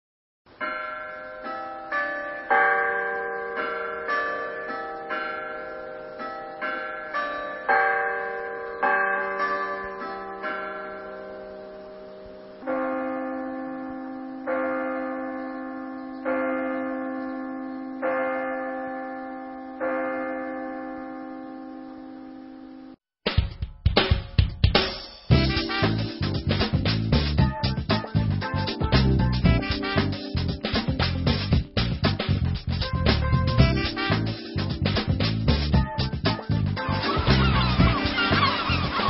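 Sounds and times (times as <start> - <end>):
bells ringing: 0.6 - 23.0, 25.3 - 26.5, 33.3 - 39.0.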